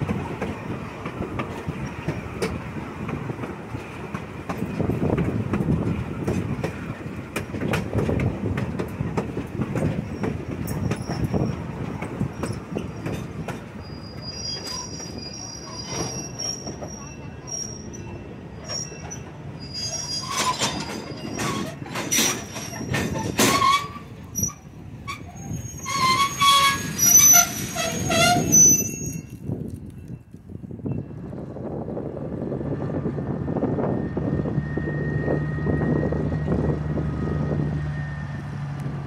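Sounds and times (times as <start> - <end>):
railroad cars rumbling on track: 0.0 - 39.0
high-pitched wheel squeal: 13.8 - 29.4.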